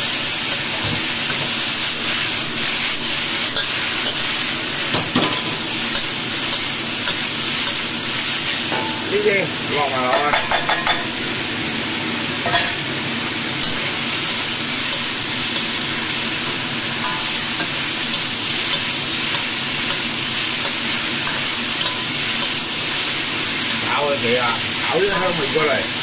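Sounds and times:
food sizzling in a wok: 0.0 - 26.0
metal spatula scraping wok: 13.6 - 22.7.

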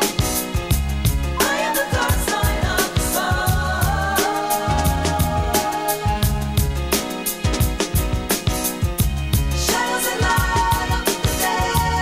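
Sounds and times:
background music with drum beat: 0.0 - 12.0
person singing: 1.4 - 6.7, 9.6 - 12.0.

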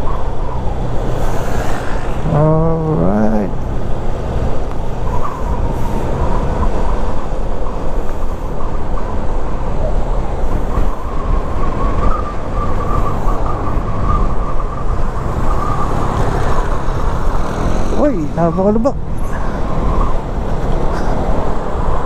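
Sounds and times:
wind and road noise: 0.0 - 22.0
scooter engine cruising: 15.2 - 19.2.

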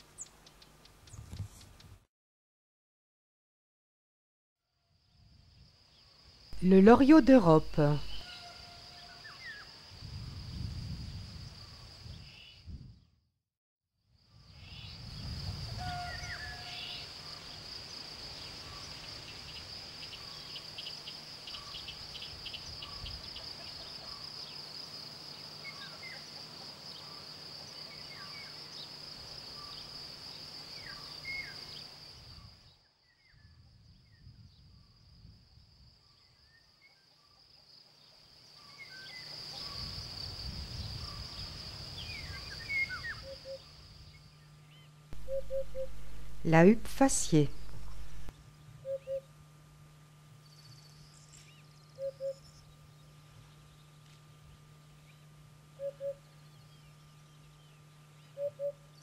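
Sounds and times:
insect trill: 4.8 - 12.6, 14.2 - 33.9, 34.6 - 46.4
faint bird whistles: 45.2 - 46.0, 52.0 - 52.4, 58.3 - 58.8.

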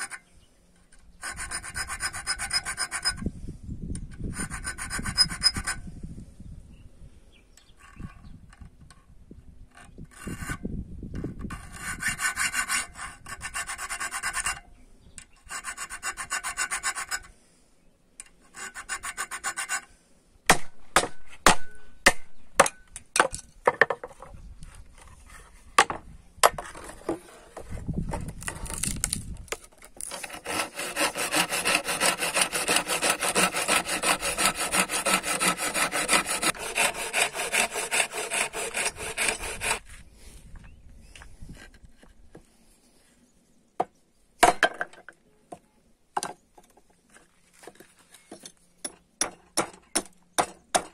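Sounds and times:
file rasping on metal: 1.2 - 3.2, 4.3 - 5.8, 11.5 - 14.6, 15.5 - 17.3, 18.5 - 19.9, 30.1 - 39.8
hand saw cutting wood: 1.2 - 3.3, 4.2 - 5.8, 11.3 - 14.6, 15.4 - 17.3, 18.5 - 19.9, 29.8 - 40.0.

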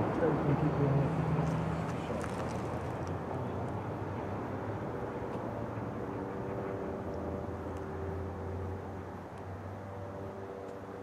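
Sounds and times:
train wheels rumbling on rail: 5.1 - 8.0.

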